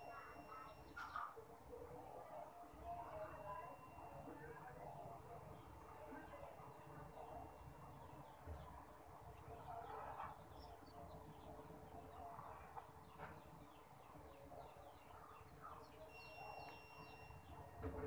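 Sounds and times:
faint steady high tone: 0.0s - 1.3s, 1.9s - 8.2s, 15.9s - 18.0s.

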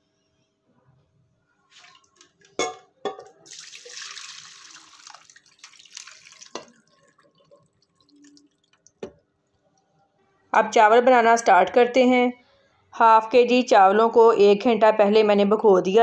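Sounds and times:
liquid pouring through strainer: 3.5s - 9.0s.

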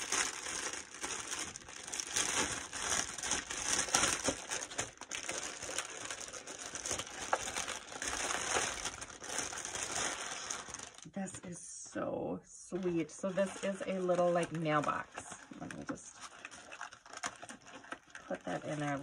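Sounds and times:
cellophane and paper crinkling: 0.0s - 11.5s, 12.7s - 19.0s.

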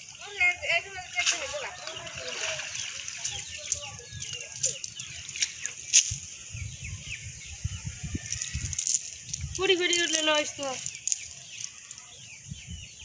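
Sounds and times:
wet net rustling and clicking: 1.2s - 6.2s, 8.3s - 12.1s
bird chirps: 1.3s - 13.0s.

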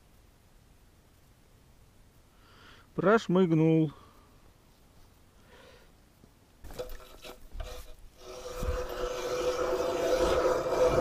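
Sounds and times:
ice auger grinding: 6.7s - 11.0s
ice auger scraping: 6.7s - 11.0s.

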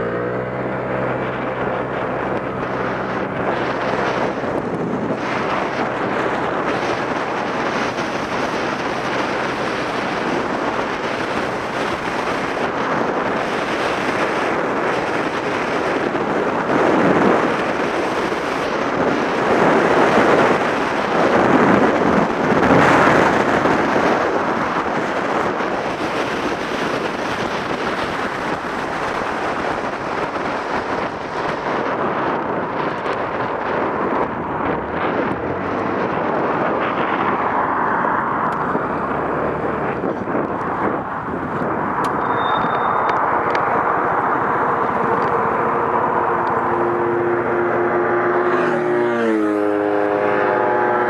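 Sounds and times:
road noise: 0.0s - 51.0s
scooter engine: 0.0s - 51.0s
wind buffeting microphone: 0.0s - 51.0s.

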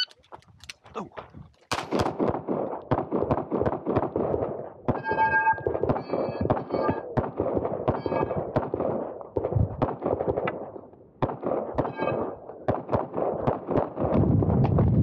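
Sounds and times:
pistol shots: 1.7s - 14.3s
brief ringing tone: 5.0s - 7.1s, 8.0s - 8.4s.

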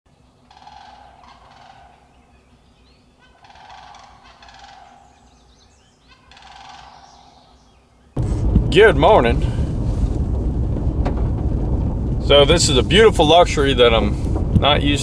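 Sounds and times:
cranes calling: 0.4s - 7.8s.

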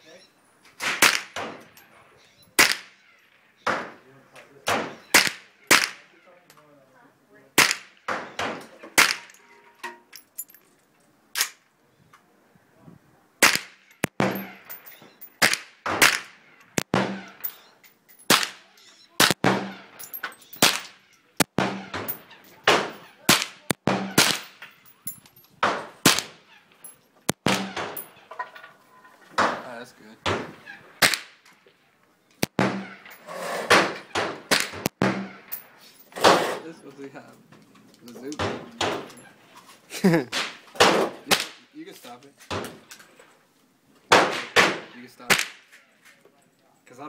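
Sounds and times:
rifle shots: 0.8s - 1.6s, 2.6s - 2.9s, 13.4s - 14.6s, 15.4s - 17.5s, 18.3s - 18.6s, 19.2s - 20.0s, 20.6s - 24.6s, 25.6s - 26.4s, 27.3s - 28.1s, 30.2s - 31.4s, 32.4s - 33.1s, 33.7s - 35.5s.

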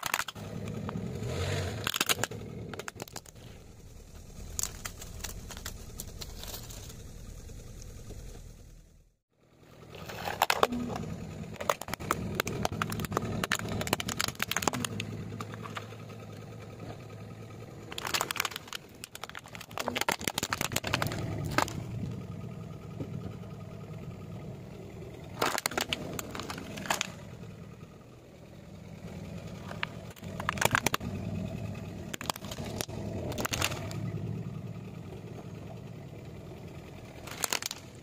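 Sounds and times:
plastic toys cracking and snapping: 0.0s - 1.0s, 1.8s - 3.4s, 4.4s - 6.8s, 10.0s - 15.8s, 17.8s - 22.0s, 25.3s - 27.2s, 29.5s - 31.4s, 32.0s - 34.2s, 37.2s - 38.0s
car tyre rolling on asphalt: 0.2s - 38.0s.

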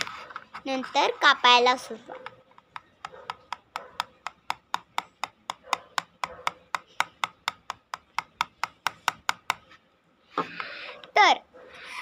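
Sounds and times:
plastic toy knife chopping taps: 2.6s - 9.7s.

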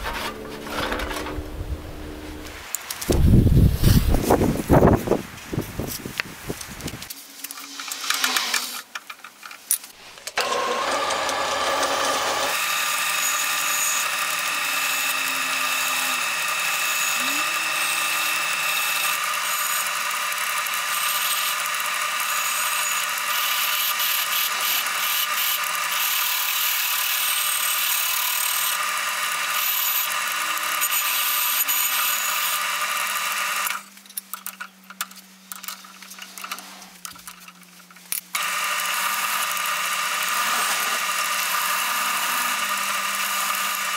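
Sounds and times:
drill press wire wheel scrubbing metal: 10.2s - 34.2s, 38.3s - 43.9s.

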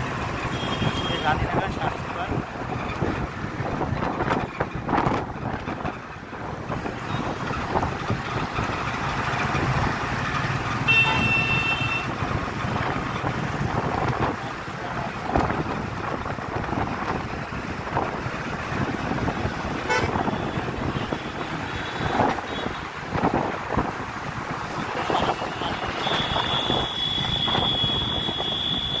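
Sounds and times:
road and wind noise: 0.0s - 29.0s
vehicle horn honking: 0.5s - 1.4s, 10.9s - 12.1s, 19.9s - 21.2s, 25.0s - 29.0s.

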